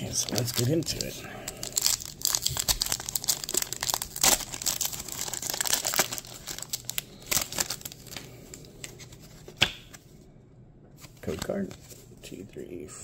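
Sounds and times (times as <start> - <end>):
foil wrapper tearing and crinkling: 0.0 - 8.6
cards being handled: 7.3 - 10.1, 11.0 - 12.1.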